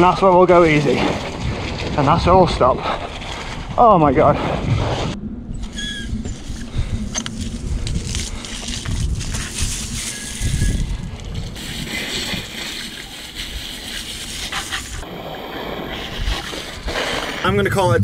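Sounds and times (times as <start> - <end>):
hose spraying water on bike: 8.0 - 15.1.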